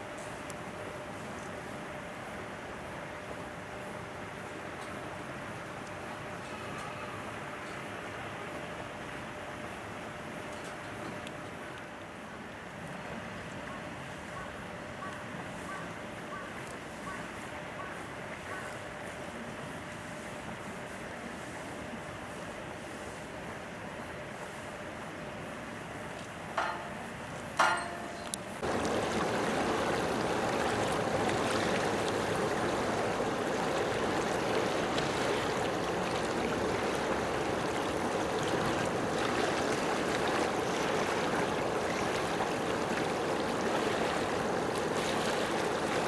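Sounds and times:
running water: 0:26.6 - 0:46.0.

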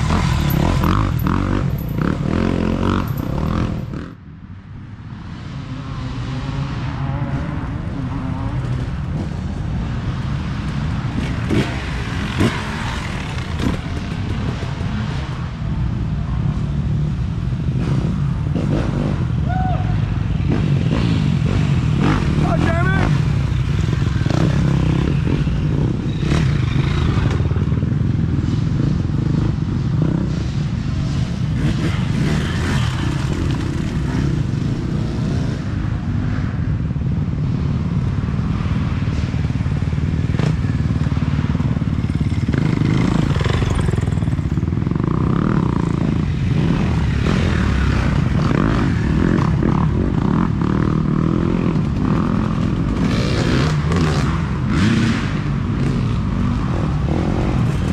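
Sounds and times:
dirt bikes revving: 0:00.0 - 0:04.3, 0:05.3 - 0:57.9
dirt bike engines rumbling: 0:00.0 - 0:57.9.

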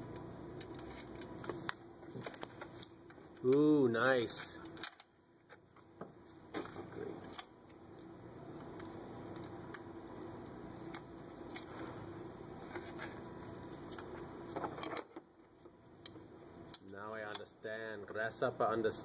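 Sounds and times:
metallic clicks and scraping: 0:00.1 - 0:03.6.

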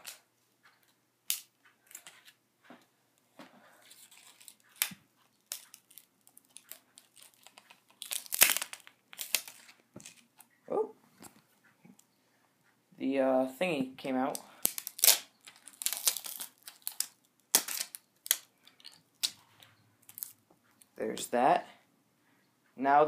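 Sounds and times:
hand tools cutting and prying casing: 0:14.6 - 0:19.4
crunching metal plastic and glass: 0:14.6 - 0:20.4.

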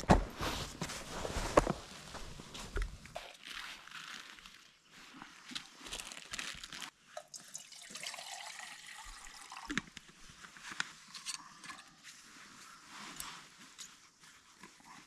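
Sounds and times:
camping gear clicks and knocks: 0:00.0 - 0:03.2, 0:09.7 - 0:12.2
water pouring and splashing: 0:05.8 - 0:09.8.

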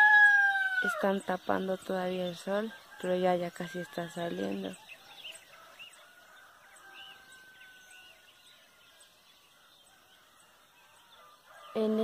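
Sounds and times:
rooster crowing: 0:00.0 - 0:01.0, 0:02.7 - 0:08.9
small birds chirping: 0:00.1 - 0:12.0.

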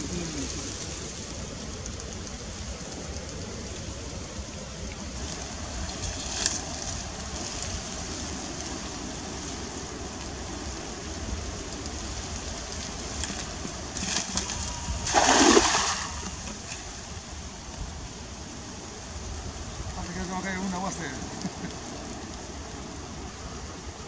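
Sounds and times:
steady background hiss: 0:00.0 - 0:24.0
splash in water: 0:14.0 - 0:16.8.

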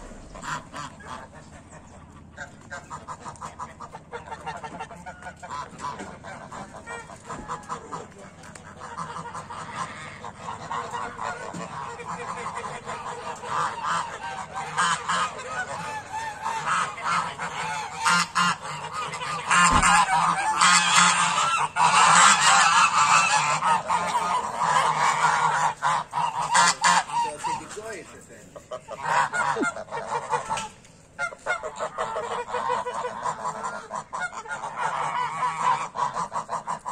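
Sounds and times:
low thump: 0:00.0 - 0:00.7, 0:19.7 - 0:20.2
geese honking: 0:00.0 - 0:36.9.

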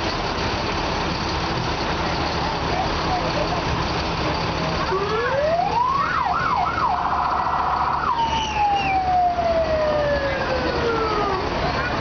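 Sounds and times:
truck engine rumbling: 0:00.0 - 0:12.0
fire truck siren: 0:03.2 - 0:12.0.

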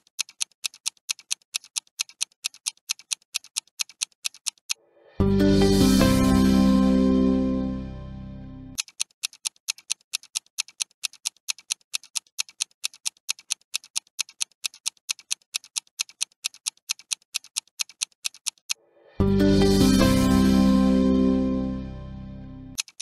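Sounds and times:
clock ticking: 0:00.0 - 0:04.8, 0:08.8 - 0:21.4, 0:22.8 - 0:23.0
music: 0:05.0 - 0:08.8, 0:19.0 - 0:22.8.

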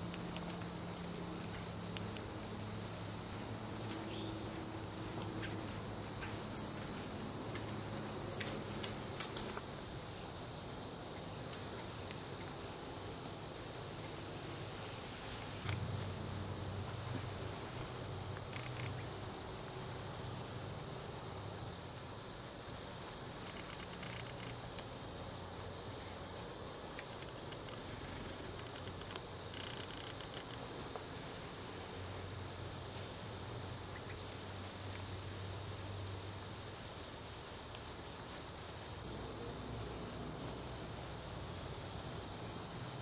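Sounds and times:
steady hiss: 0:00.0 - 0:43.0
faint insect trilling: 0:03.8 - 0:37.2.

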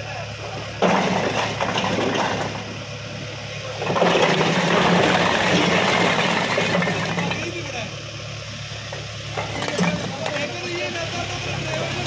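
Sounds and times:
tractor diesel engine running: 0:00.0 - 0:12.0
bricks clattering down: 0:00.8 - 0:02.7, 0:03.8 - 0:07.5, 0:09.4 - 0:10.5.

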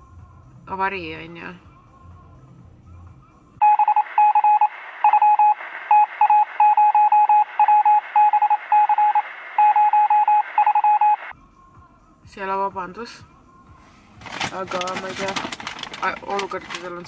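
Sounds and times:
electronic beeps: 0:03.6 - 0:11.3
radio hiss: 0:04.7 - 0:06.6, 0:07.4 - 0:09.7.

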